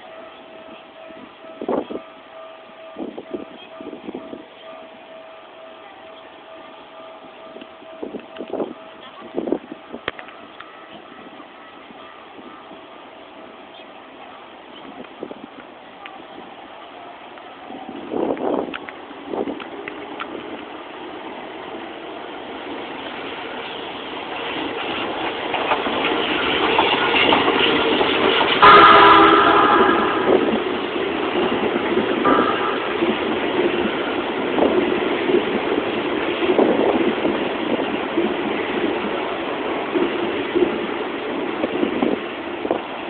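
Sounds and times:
electric train passing: 0:00.0 - 0:43.0
wheels clattering over rail joints: 0:18.1 - 0:43.0
train horn blast: 0:28.6 - 0:31.0, 0:32.2 - 0:33.8.

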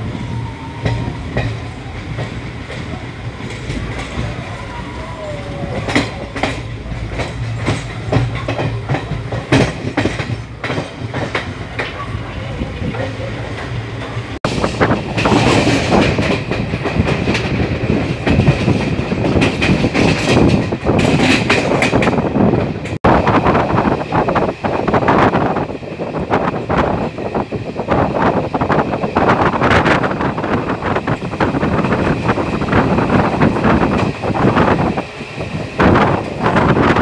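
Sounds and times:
wind and rattle: 0:00.0 - 0:37.0
train wheels clicking over rail joints: 0:00.7 - 0:04.4, 0:05.5 - 0:23.0.

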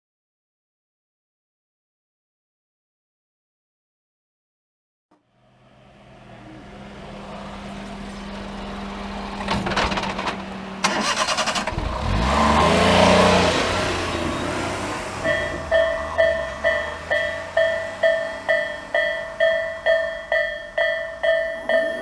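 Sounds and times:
truck engine: 0:05.2 - 0:22.0
truck rattling over rails: 0:05.5 - 0:22.0
crossing warning bell dinging: 0:13.3 - 0:22.0.

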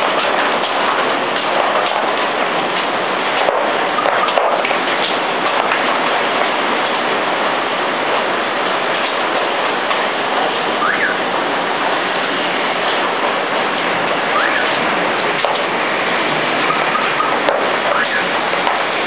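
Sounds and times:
heavy rain pouring: 0:00.0 - 0:19.0.

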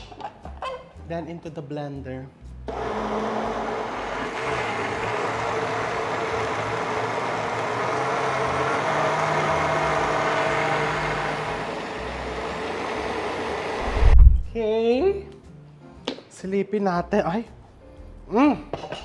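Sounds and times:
blender motor running: 0:02.7 - 0:13.9.

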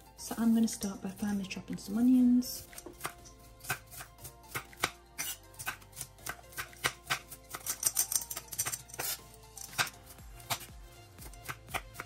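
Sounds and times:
knife chopping on board: 0:02.6 - 0:12.0.

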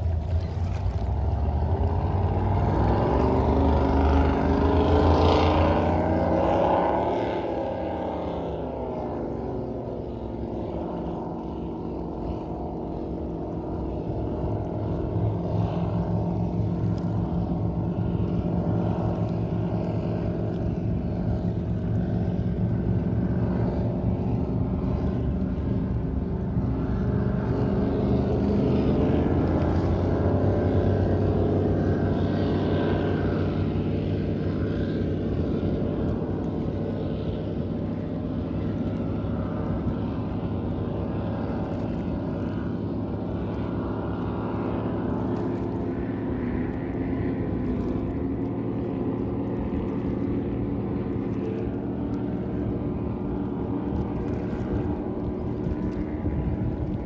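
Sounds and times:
powerboat engines droning: 0:00.0 - 0:57.0.

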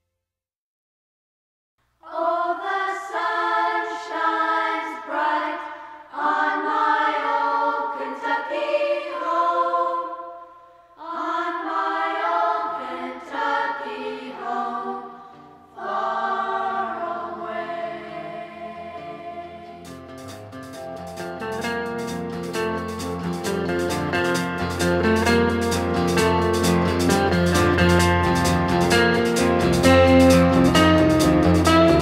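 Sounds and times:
choir singing unaccompanied: 0:02.0 - 0:20.4.

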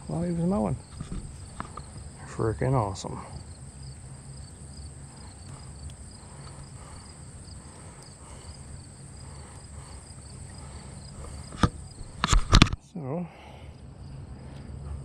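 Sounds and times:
insects chirring: 0:00.0 - 0:15.0
low steady hum: 0:00.0 - 0:15.0
sharp click: 0:11.2 - 0:12.8.

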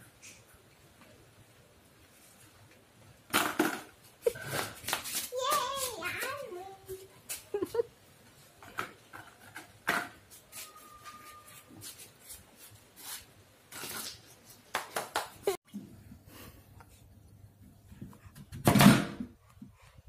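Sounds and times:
slippered steps on tiled floor: 0:04.4 - 0:06.4.

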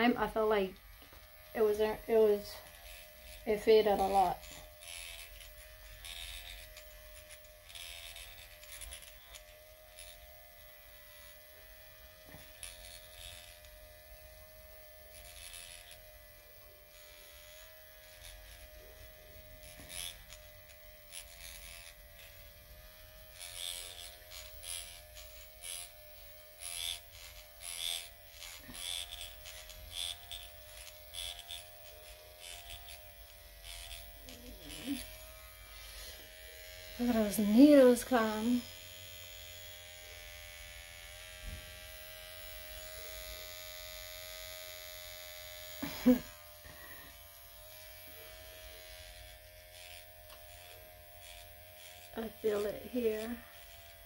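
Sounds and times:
short scratchy bursts: 0:00.0 - 0:10.2, 0:23.3 - 0:38.7, 0:48.1 - 0:54.0
microneedling pen motor hum: 0:00.0 - 0:54.0.

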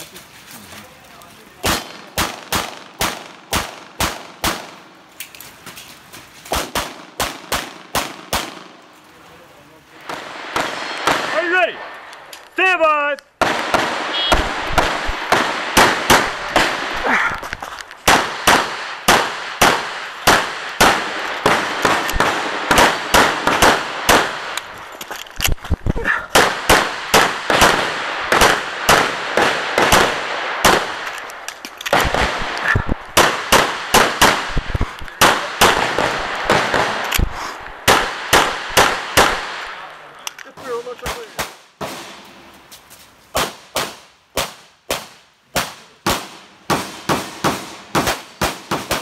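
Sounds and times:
rapid pistol fire: 0:01.6 - 0:04.8, 0:06.5 - 0:08.7, 0:10.1 - 0:11.4, 0:13.4 - 0:17.0, 0:18.0 - 0:24.6, 0:26.3 - 0:31.0, 0:31.9 - 0:37.1, 0:37.8 - 0:39.7, 0:43.4 - 0:49.0.

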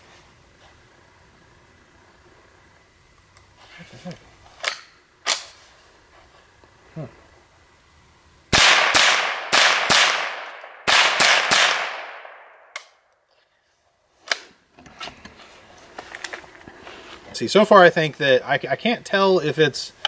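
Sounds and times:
rifle shots cracking: 0:08.5 - 0:12.9.

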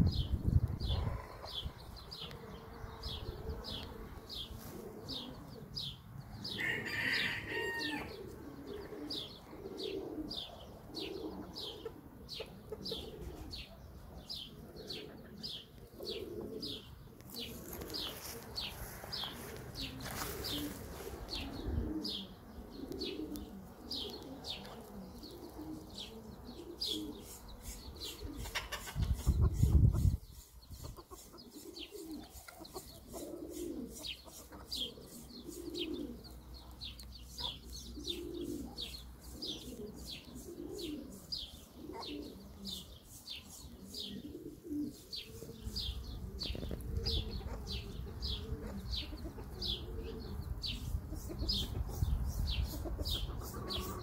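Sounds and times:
doves cooing: 0:00.0 - 0:30.2, 0:30.8 - 0:54.0.

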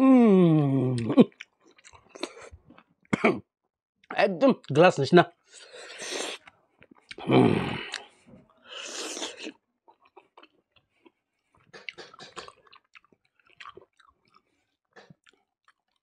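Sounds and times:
man chewing food: 0:01.0 - 0:03.2, 0:05.5 - 0:16.0.

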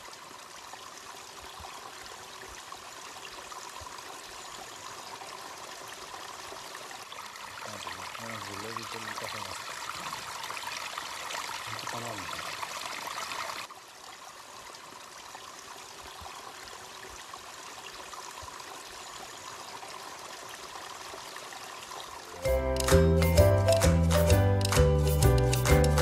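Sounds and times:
stream running over rocks: 0:00.0 - 0:23.9.

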